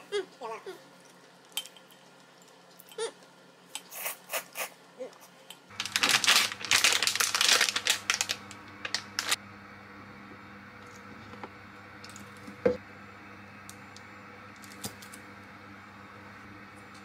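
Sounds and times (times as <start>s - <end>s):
plastic packet crinkling: 5.7s - 9.4s.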